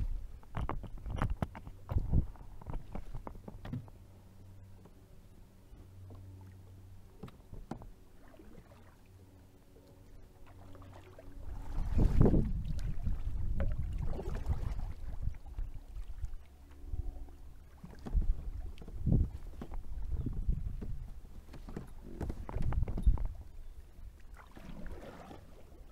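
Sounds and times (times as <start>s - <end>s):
kayak paddle splashing water: 6.3s - 16.8s, 24.2s - 25.9s.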